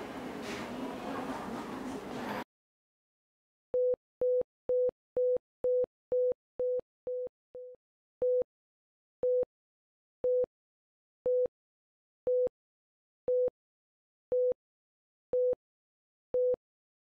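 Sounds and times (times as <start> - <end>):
heart monitor beeps: 3.8 - 8.5, 9.2 - 9.5, 10.2 - 10.5, 11.3 - 11.5, 12.3 - 12.5, 13.3 - 13.5, 14.3 - 14.6, 15.3 - 15.6, 16.4 - 16.6.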